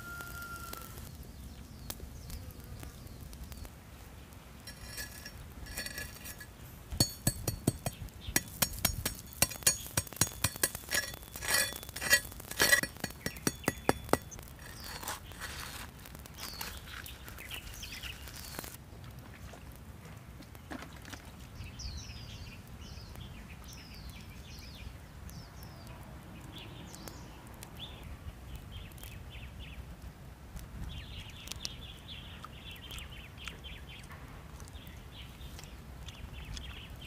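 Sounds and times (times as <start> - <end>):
salt crackling and popping: 0.0 - 37.0
light clinks: 4.7 - 15.0.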